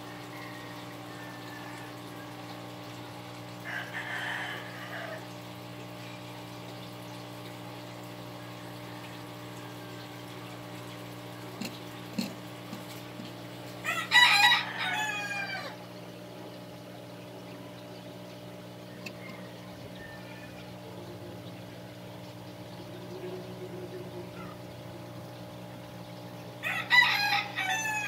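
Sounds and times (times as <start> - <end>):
rooster crowing: 0.0 - 2.3, 3.6 - 5.2, 13.8 - 15.8, 18.9 - 20.7, 26.6 - 28.0
low background hum: 0.0 - 28.0.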